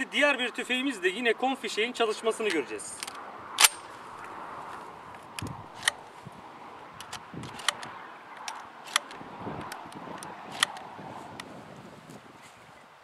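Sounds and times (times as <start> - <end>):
shotgun action clicking: 2.5 - 3.9, 5.2 - 6.0, 7.0 - 10.8.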